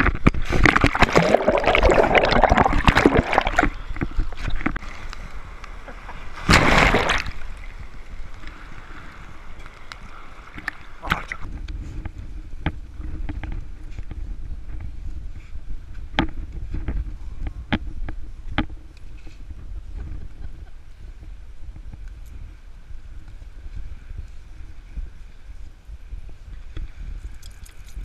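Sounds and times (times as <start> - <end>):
seawater splashing and sloshing: 0.4 - 5.0, 5.9 - 7.8.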